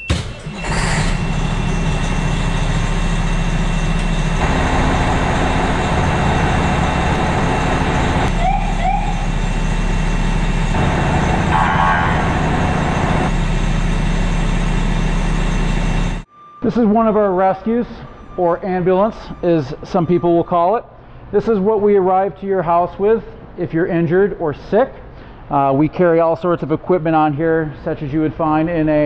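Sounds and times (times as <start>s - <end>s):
short rising siren chirps: 0.0s - 21.4s
diesel engine running: 0.1s - 16.3s.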